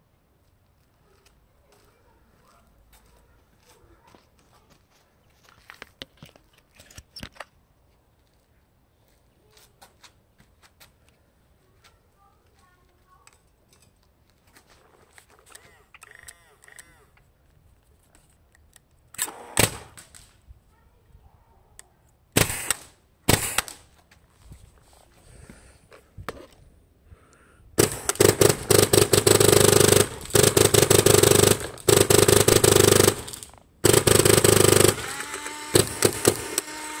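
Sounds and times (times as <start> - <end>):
motor whirring: 19.2 - 19.9, 27.8 - 37.0
paintball marker firing: 19.2 - 20.3, 22.4 - 23.8, 27.8 - 37.0.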